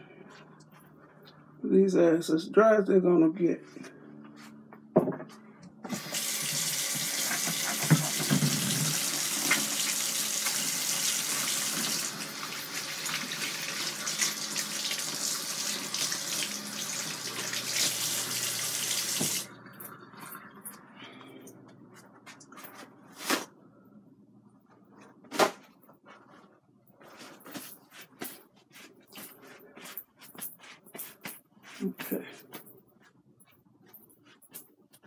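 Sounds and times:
faucet running over hands: 5.9s - 19.5s.

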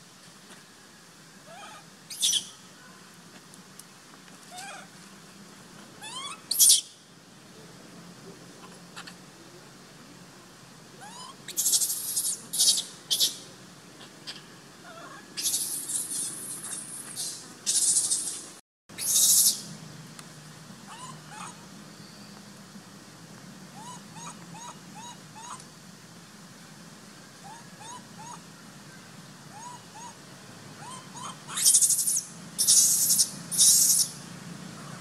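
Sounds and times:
baby monkey screaming: 1.5s - 2.5s, 6.0s - 6.9s, 11.0s - 13.4s, 14.3s - 18.4s, 19.0s - 19.7s, 20.9s - 21.6s, 23.8s - 25.6s, 27.4s - 28.4s, 29.5s - 30.2s, 30.8s - 34.2s.

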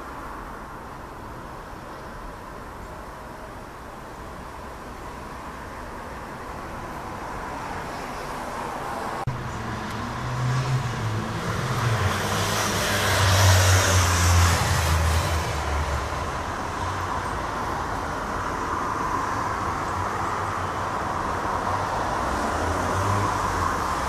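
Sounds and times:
vehicle rushing noise: 7.3s - 24.0s.

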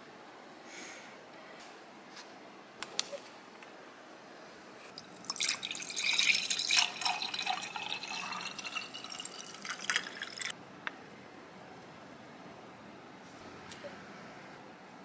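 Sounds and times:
juice pouring into a glass: 5.0s - 10.5s.

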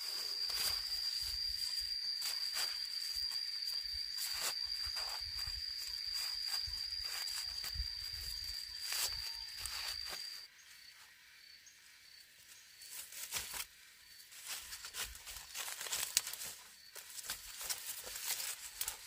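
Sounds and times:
corn leaves rustling and crackling: 0.0s - 10.4s, 12.9s - 13.7s, 14.3s - 19.0s
footsteps through dry leaves: 0.0s - 10.5s, 14.3s - 19.0s.

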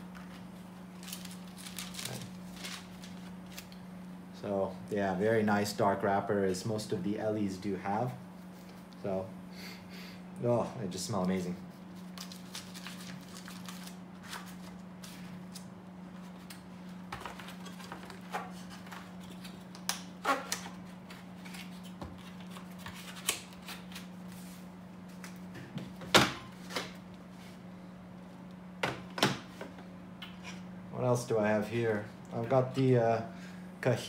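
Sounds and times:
wood and paper rustling: 0.2s - 3.7s.

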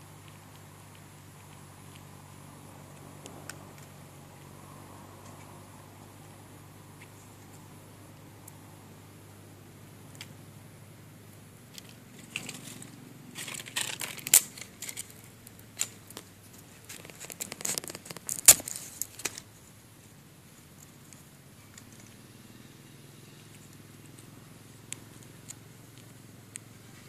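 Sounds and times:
leaves and twigs crackling: 11.3s - 22.2s
twig snapping: 13.4s - 19.4s.

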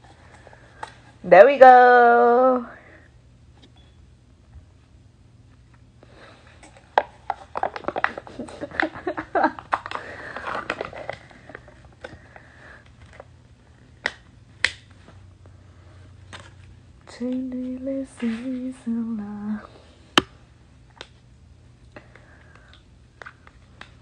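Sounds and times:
foil lid crackling and snapping: 6.9s - 11.6s.

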